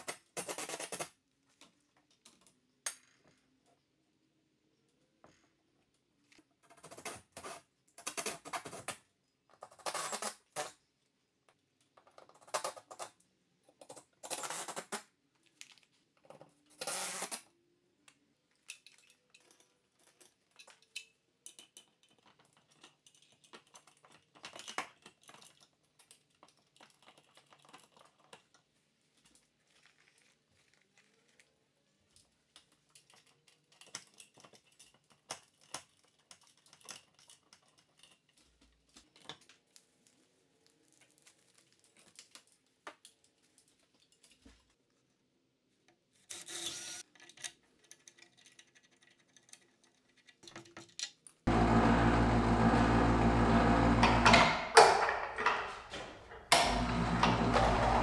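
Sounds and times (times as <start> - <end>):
small metal clicks and knocks: 18.1 - 29.4, 32.1 - 39.6, 41.6 - 44.8, 47.0 - 51.5.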